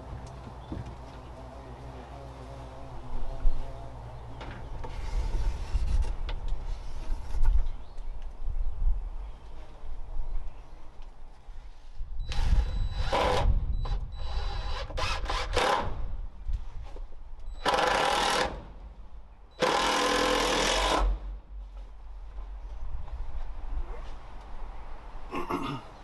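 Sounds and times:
cordless drill driving screws: 0:12.3 - 0:13.5, 0:14.2 - 0:15.9, 0:17.6 - 0:18.6, 0:19.6 - 0:21.2.

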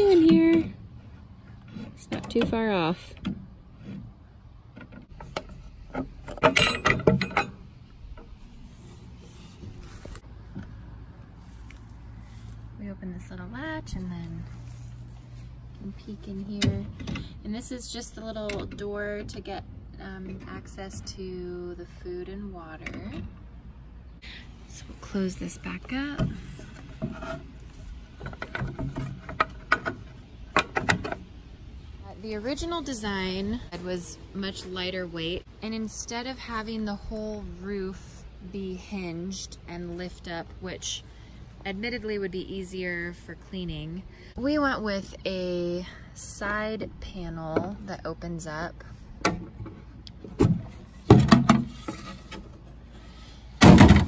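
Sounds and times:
handling of wood: 0:00.0 - 0:12.7, 0:24.7 - 0:34.9, 0:49.1 - 0:54.0
metal latch clicking: 0:04.7 - 0:08.4.

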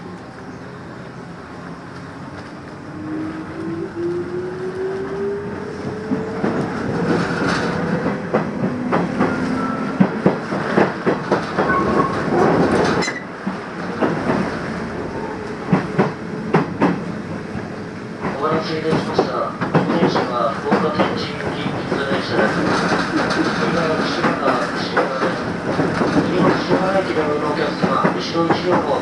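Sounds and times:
wheels clicking over rail joints: 0:05.0 - 0:11.8, 0:18.2 - 0:29.0.

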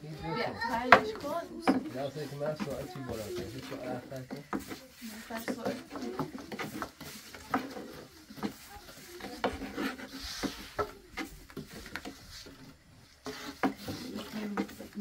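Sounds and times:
wood rubbing: 0:00.0 - 0:15.0
rolling pin knocking on wood: 0:00.9 - 0:02.0, 0:05.4 - 0:08.6.

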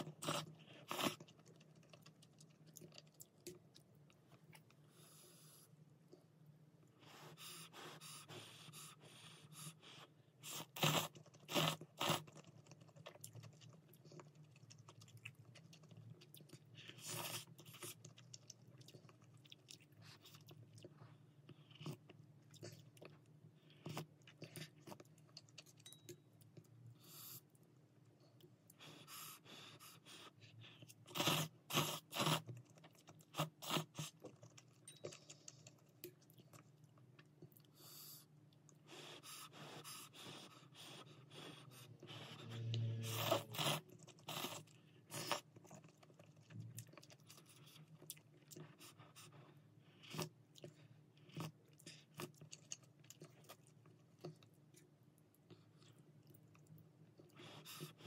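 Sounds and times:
chewing: 0:00.0 - 0:05.1, 0:10.4 - 0:27.6, 0:28.2 - 0:58.0.

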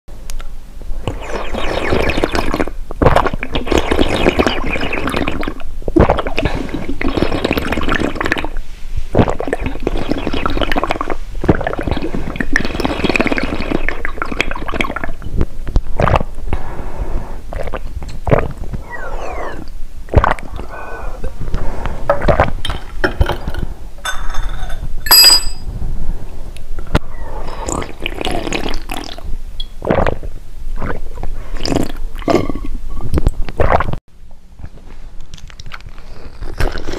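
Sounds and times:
gulping: 0:16.0 - 0:16.4, 0:17.5 - 0:21.4, 0:22.1 - 0:23.5.

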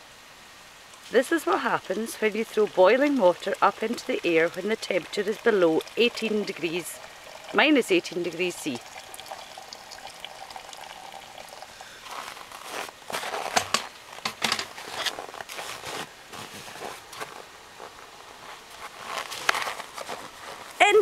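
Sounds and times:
water pouring into jug: 0:01.8 - 0:12.8
footsteps crunching on snow: 0:12.0 - 0:20.8.

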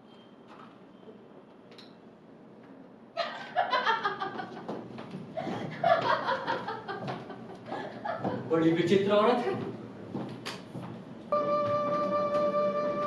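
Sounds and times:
people laughing: 0:03.2 - 0:04.8, 0:05.4 - 0:08.5.

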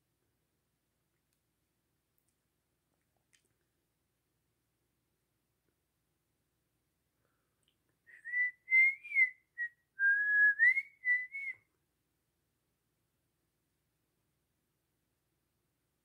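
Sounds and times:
person whistling a tune: 0:08.1 - 0:11.6.

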